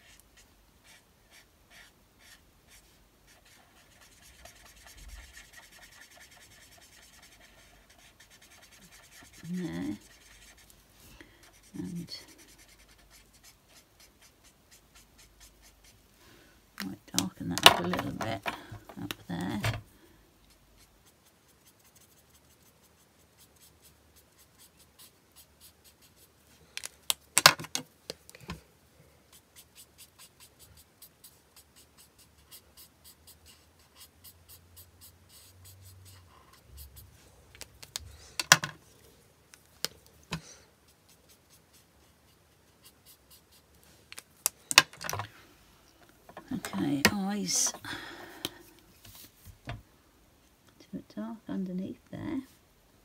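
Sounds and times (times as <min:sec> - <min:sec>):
marker nib scratching on card: 0:00.0 - 0:10.8, 0:11.5 - 0:16.0, 0:20.4 - 0:26.3, 0:29.3 - 0:38.0, 0:40.9 - 0:43.7.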